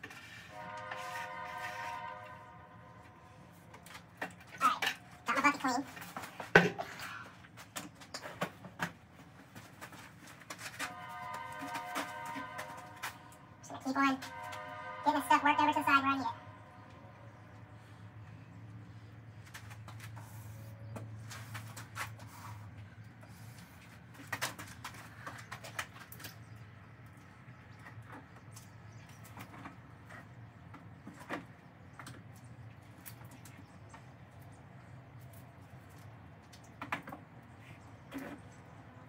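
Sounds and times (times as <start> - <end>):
low steady hum: 0.0 - 21.7.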